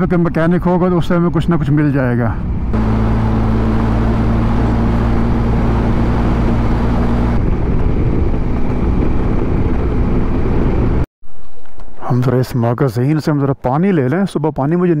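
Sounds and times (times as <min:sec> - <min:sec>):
wind and road noise: 0:00.0 - 0:14.5
motorcycle engine running: 0:02.8 - 0:10.9.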